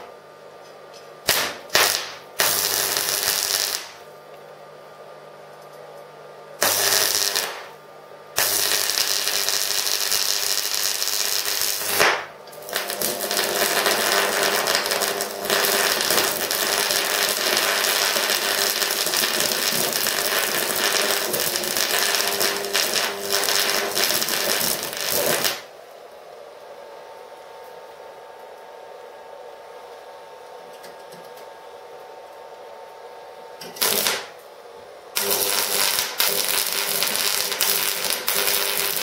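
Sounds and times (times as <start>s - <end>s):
welding arc crackling and buzzing: 1.2s - 4.1s, 6.6s - 25.7s, 33.6s - 34.5s, 35.1s - 39.0s.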